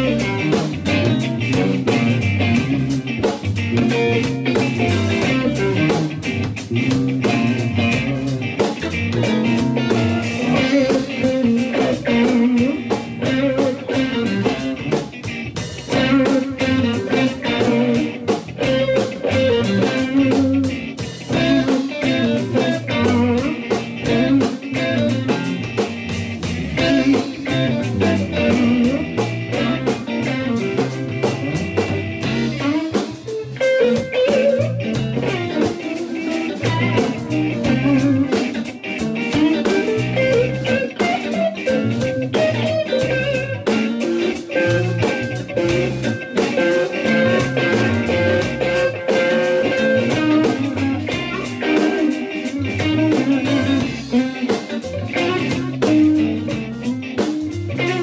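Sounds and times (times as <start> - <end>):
drum kit beat: 0.0 - 58.0
electric bass: 0.0 - 58.0
electric guitars: 0.0 - 58.0.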